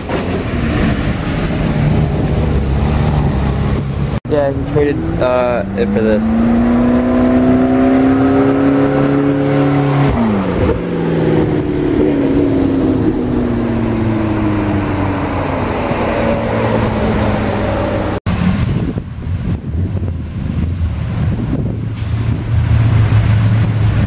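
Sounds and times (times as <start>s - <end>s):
second sports car passing: 2.2s - 18.2s
sports car accelerating past: 4.6s - 18.2s.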